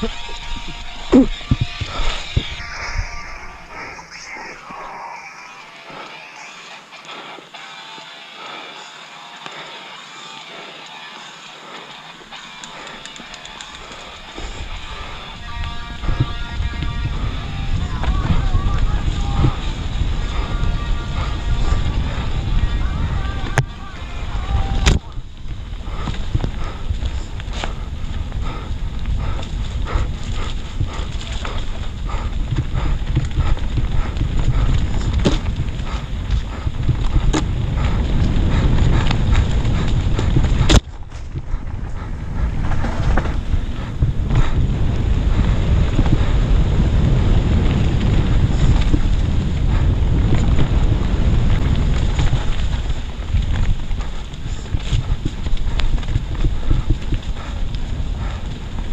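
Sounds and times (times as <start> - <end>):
wind rumble on microphone: 0.0 - 6.1, 12.7 - 58.9
bike knocking and rattling: 16.1 - 58.9.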